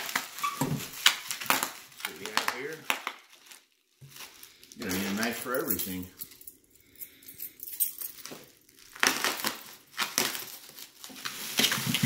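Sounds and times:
bubble wrap crinkling: 0.0 - 7.3, 7.9 - 12.0.

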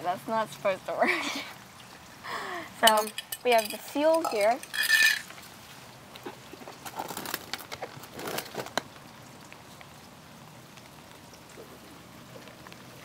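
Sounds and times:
plastic clicks and rustles: 6.2 - 9.1.

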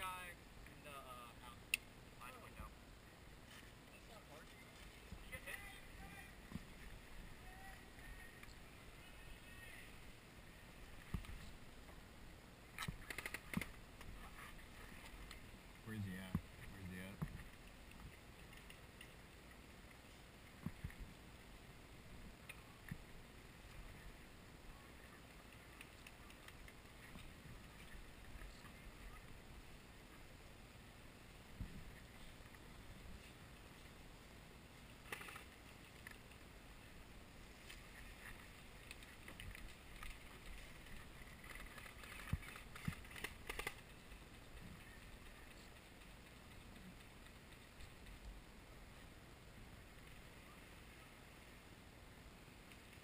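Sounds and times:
faint hiss: 0.0 - 53.0
faint outdoor background: 0.0 - 53.0
clicks and crunches: 41.4 - 43.9.

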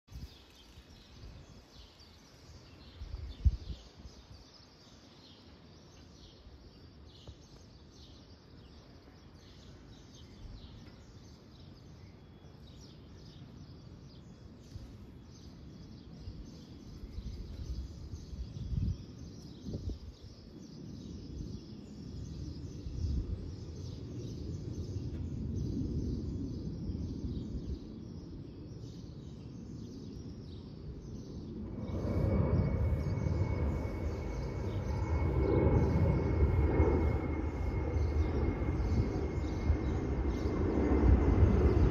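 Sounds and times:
small birds chirping: 0.0 - 41.9
distant jet engines rumbling: 7.3 - 41.9.

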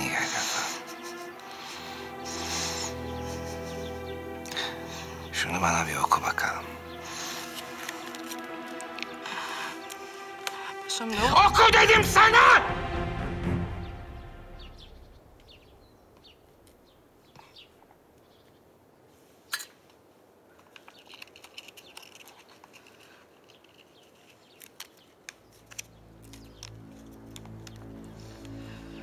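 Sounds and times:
background music: 0.0 - 15.9, 25.6 - 29.0.

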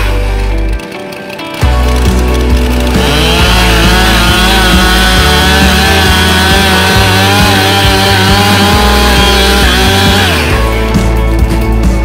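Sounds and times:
chainsaw cutting wood: 0.0 - 12.0.

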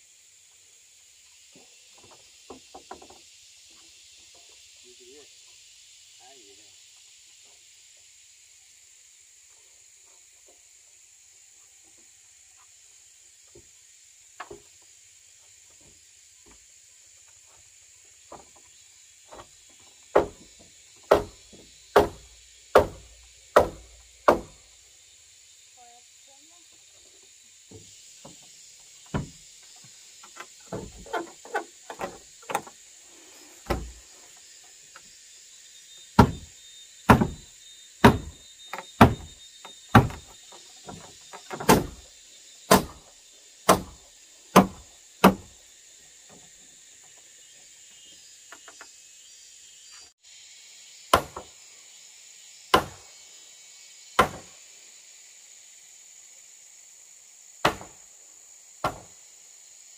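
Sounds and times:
blows knocking timber beam: 20.1 - 24.6, 29.0 - 29.4, 36.2 - 36.5, 37.1 - 37.4, 38.0 - 39.3, 39.9 - 40.3, 40.9 - 42.0, 42.7 - 43.0, 43.7 - 44.0, 44.6 - 45.5.

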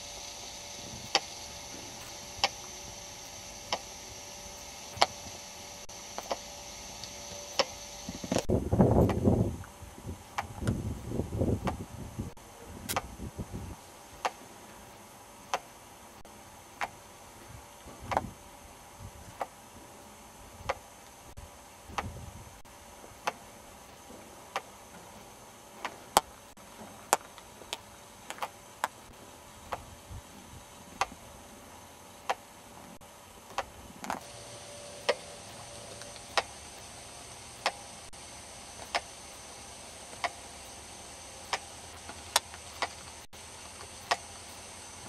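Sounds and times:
faint steady hiss: 0.0 - 45.0
sharp dry clicks: 0.6 - 9.2, 12.8 - 13.2, 31.0 - 31.2, 32.2 - 32.5, 33.5 - 38.2, 38.8 - 45.0.

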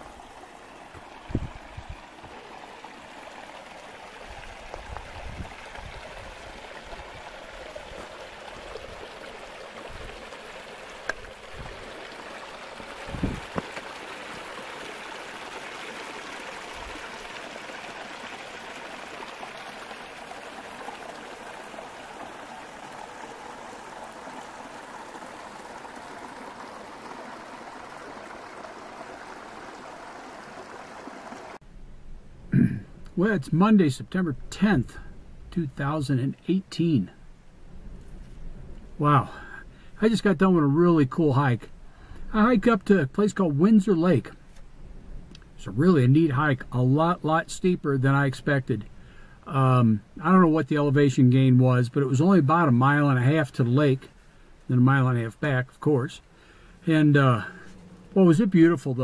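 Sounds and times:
creek rushing over boulders: 0.0 - 31.6.

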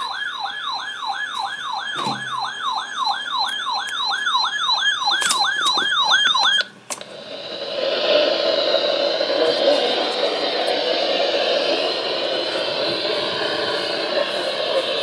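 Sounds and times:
alarm siren whooping: 0.0 - 15.0
radio static hiss: 7.1 - 15.0.

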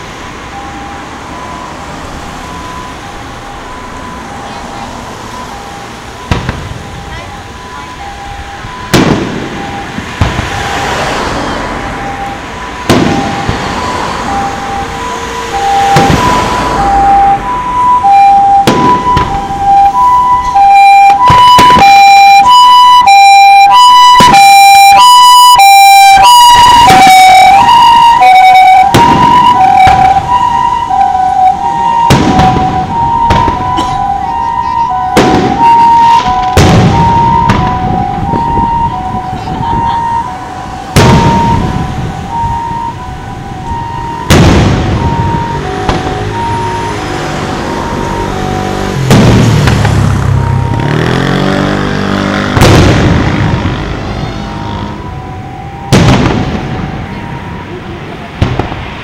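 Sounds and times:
ambulance two-tone siren: 0.0 - 52.6, 53.3 - 58.3
fireworks bursting with booms: 6.3 - 7.0, 8.9 - 10.7, 12.8 - 14.0, 15.9 - 16.6, 18.1 - 22.2, 28.7 - 30.4, 32.0 - 34.4, 35.0 - 40.2, 40.9 - 42.6, 44.3 - 46.2, 49.1 - 50.1, 52.6 - 53.8, 55.9 - 57.1, 58.4 - 58.9.

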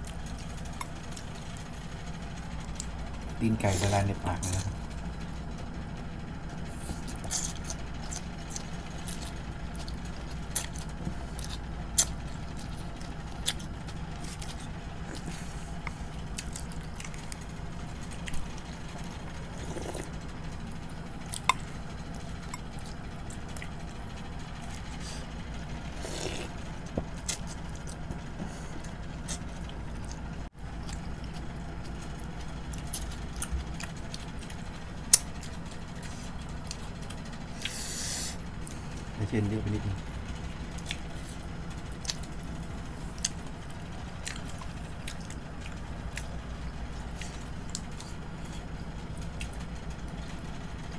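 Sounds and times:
steady low hum: 0.0 - 50.9
slurping noodles: 19.5 - 20.1, 25.9 - 26.6.

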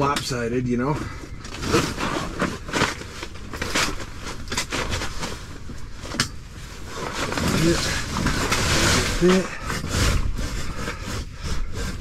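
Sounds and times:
cot rustling and scraping: 0.7 - 12.0.

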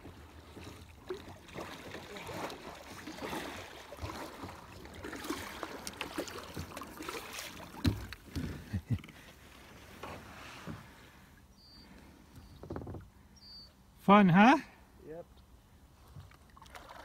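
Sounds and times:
water washing against hull: 0.0 - 11.2
paddle splashes and drips: 0.0 - 11.4, 16.0 - 17.0.

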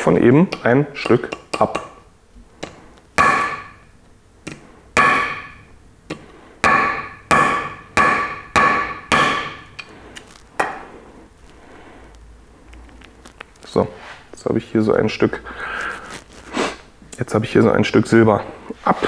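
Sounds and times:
knife chopping metal on wood: 2.6 - 3.8, 4.4 - 9.8, 10.6 - 10.9.

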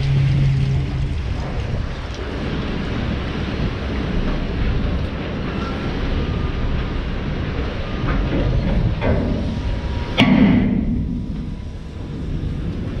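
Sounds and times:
steady low rumble: 0.0 - 13.0
metal knocks: 8.1 - 11.6.

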